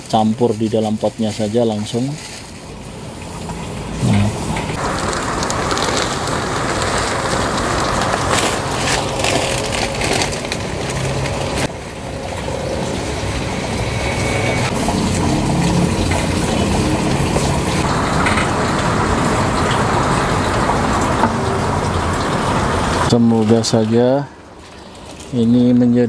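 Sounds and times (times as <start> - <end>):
steady rushing background noise: 0.0 - 23.7
rice husk pouring into plastic pot: 4.8 - 11.7.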